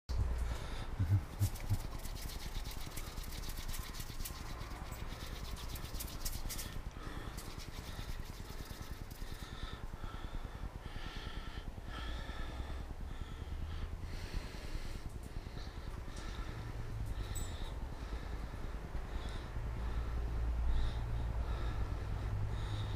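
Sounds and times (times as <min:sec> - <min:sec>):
low hum: 0:00.1 - 0:22.9
hands rustling and clicking: 0:00.2 - 0:09.5.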